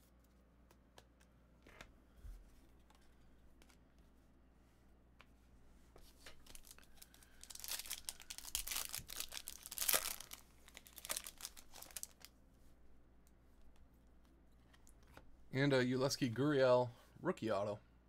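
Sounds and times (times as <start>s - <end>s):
card pack wrappers tearing and crinkling: 6.4s - 12.3s.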